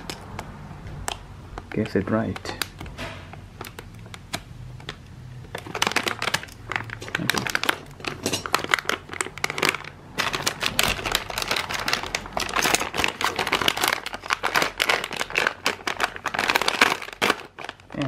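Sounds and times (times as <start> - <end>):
plastic bag crinkling: 4.8 - 18.0.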